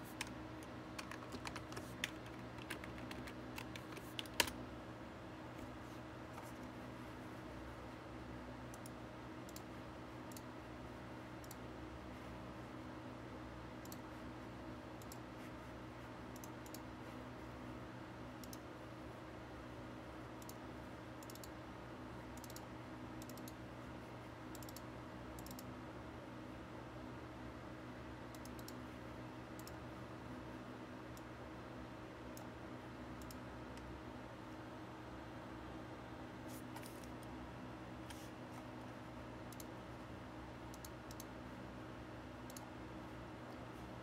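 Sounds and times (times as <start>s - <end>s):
computer mouse clicks: 0.0s - 4.6s, 8.7s - 9.7s, 10.3s - 10.5s, 11.4s - 11.6s, 13.8s - 14.1s, 15.0s - 15.3s, 16.3s - 16.9s, 18.4s - 18.7s, 20.4s - 20.6s, 21.2s - 21.6s, 22.4s - 23.6s, 24.5s - 25.7s, 28.3s - 28.8s, 29.6s - 29.8s, 32.3s - 32.6s, 33.2s - 34.0s, 39.5s - 39.8s, 40.7s - 41.4s, 42.4s - 42.7s
steady low hum: 0.0s - 44.0s.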